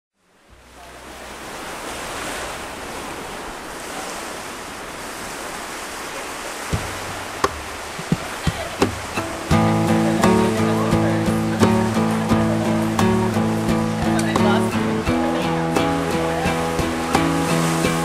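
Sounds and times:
rushing water: 0.2s - 18.0s
sharp knocks: 6.7s - 9.3s.

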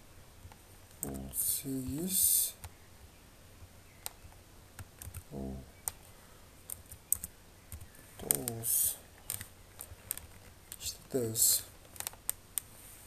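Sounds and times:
short low vocal sound: 5.3s - 5.8s.

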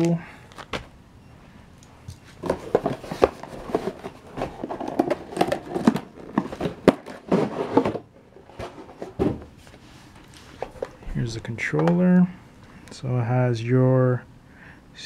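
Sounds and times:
cardboard and plastic packaging rustling: 2.1s - 12.0s.

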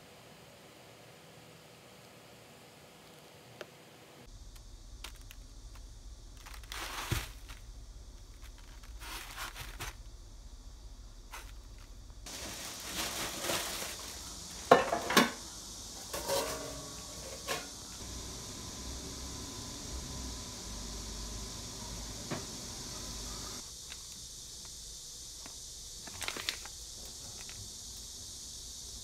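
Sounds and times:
peaches rustling and knocking in box: 6.3s - 10.1s.

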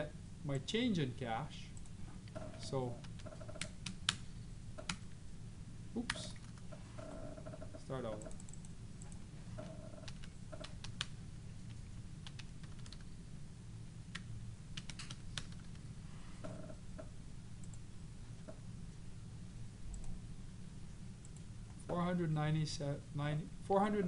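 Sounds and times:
low steady hum: 0.0s - 24.0s
keyboard keys tapping: 7.6s - 11.1s.

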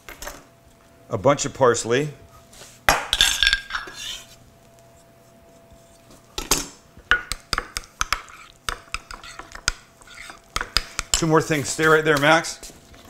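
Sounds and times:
spoon scraping ceramic bowl: 3.7s - 4.4s, 8.1s - 10.4s.

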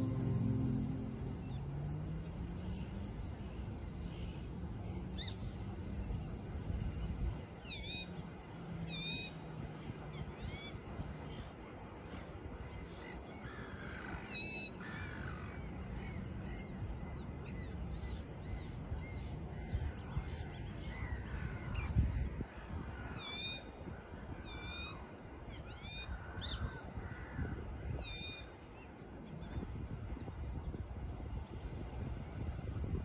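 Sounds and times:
low rumble: 0.0s - 2.1s
wind and water rush: 0.0s - 33.0s.

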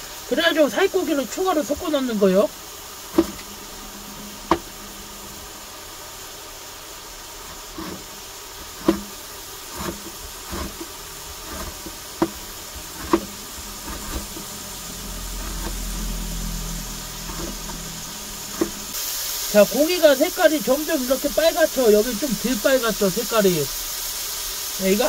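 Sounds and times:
low steady hum: 0.0s - 23.2s
meat being mixed: 7.3s - 22.4s.

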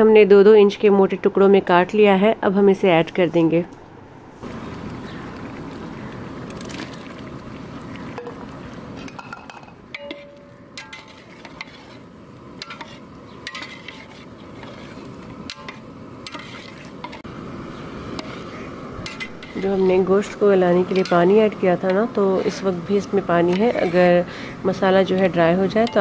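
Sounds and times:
ladle clinking against pot: 9.1s - 11.7s.

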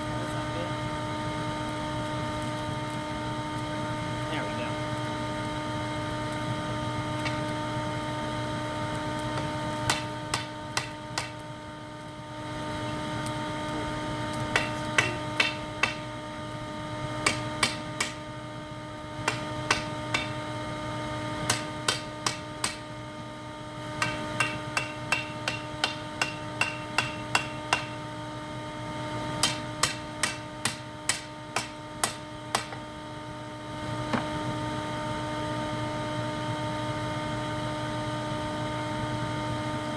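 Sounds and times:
hammer striking steel on anvil: 9.4s - 11.4s, 14.5s - 16.1s, 17.2s - 18.2s, 19.2s - 20.4s, 21.4s - 22.9s, 24.0s - 28.0s, 29.4s - 32.8s
anvil ringing: 24.0s - 27.9s
vacuum blower hum: 32.3s - 39.9s.

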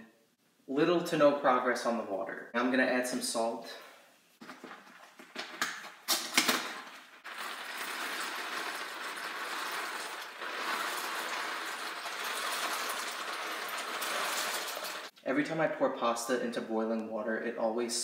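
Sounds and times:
pasta streaming into pot: 6.7s - 15.2s
pasta rattling in cardboard box: 7.2s - 15.1s.

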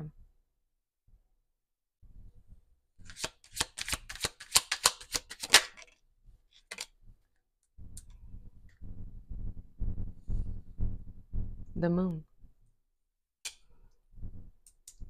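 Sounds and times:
cards being shuffled: 3.0s - 5.9s
card snaps: 3.1s - 5.8s.

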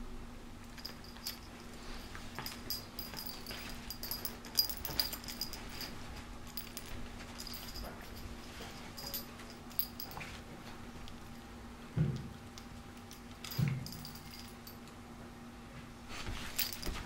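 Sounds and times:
sharp clicks and light clinks: 0.7s - 10.3s
dogs scuffling on bedspread: 16.0s - 17.0s.

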